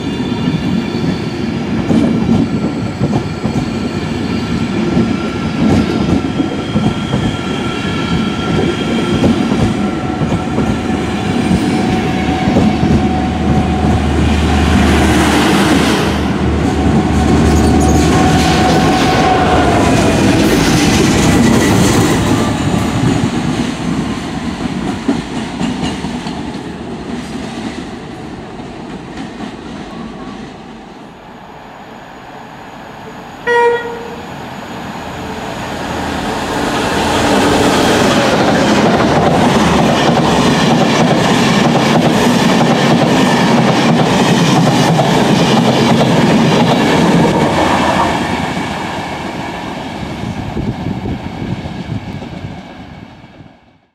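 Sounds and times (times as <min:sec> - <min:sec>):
diesel locomotive passing: 0:00.0 - 0:53.9
train passing loudly: 0:00.0 - 0:53.9
train horn blast: 0:33.4 - 0:34.3.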